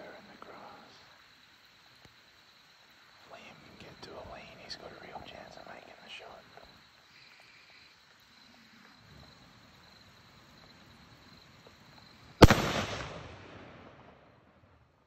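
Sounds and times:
rifle shot echoing: 0:12.4 - 0:14.5.

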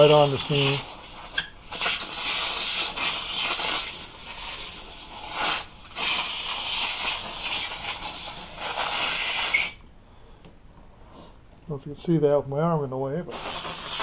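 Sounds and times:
steamer hissing: 0:00.0 - 0:09.8, 0:13.3 - 0:14.0.

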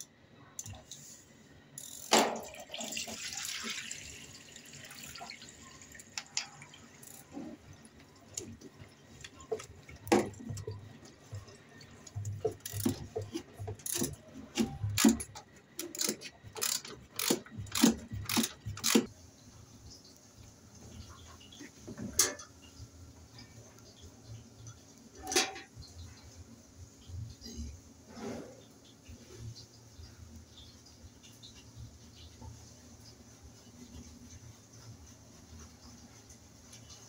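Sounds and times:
metal tool clicking and knocking: 0:12.4 - 0:19.1.

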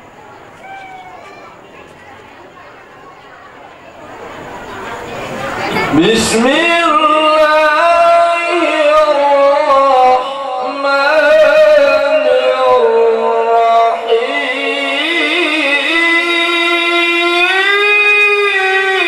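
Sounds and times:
man reciting melodically through microphone: 0:05.9 - 0:19.0.

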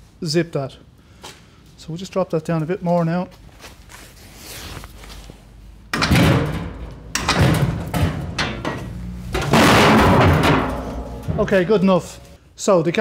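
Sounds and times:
metal rattling and scraping: 0:05.9 - 0:12.4.

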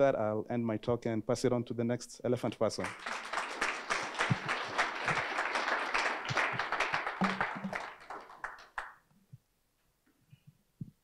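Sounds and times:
audience applauding: 0:02.8 - 0:09.0.

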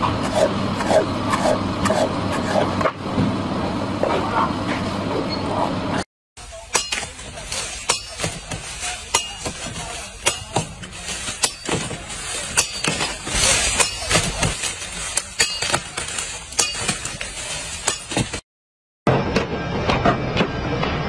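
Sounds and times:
machete chopping cane stalks: 0:06.7 - 0:18.4
rustle of cane leaves: 0:07.0 - 0:17.9.

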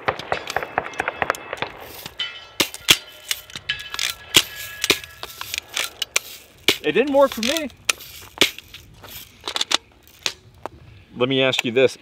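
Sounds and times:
bb guns firing shots: 0:00.0 - 0:02.0.

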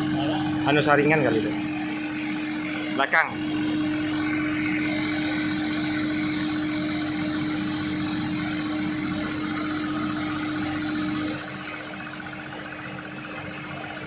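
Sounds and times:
excavator engine idling: 0:00.0 - 0:14.0.

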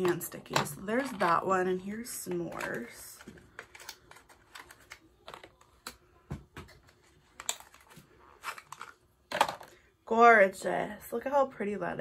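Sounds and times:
packaging clicks and taps: 0:02.3 - 0:09.7.

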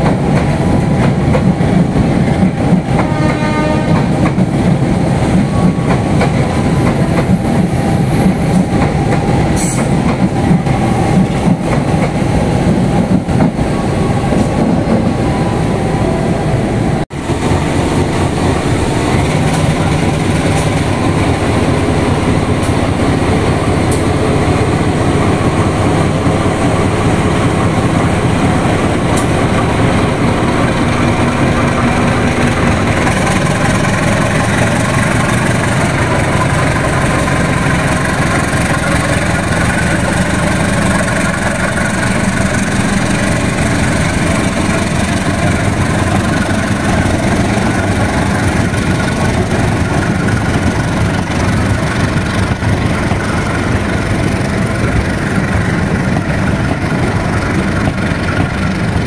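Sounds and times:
locomotive diesel engine running: 0:17.1 - 0:59.0.

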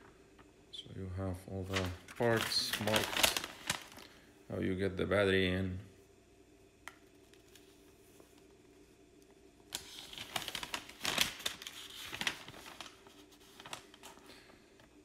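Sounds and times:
paper pages rustling: 0:01.6 - 0:04.1, 0:09.7 - 0:14.5.

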